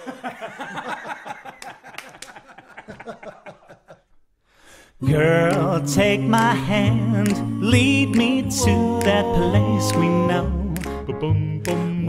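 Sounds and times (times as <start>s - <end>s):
person chuckling: 0.0s - 4.2s.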